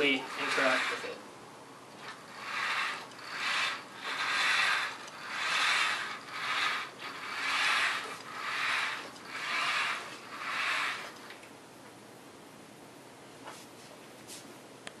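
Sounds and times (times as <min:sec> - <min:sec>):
robot wheels rasping: 0:00.0 - 0:01.2, 0:01.9 - 0:11.4.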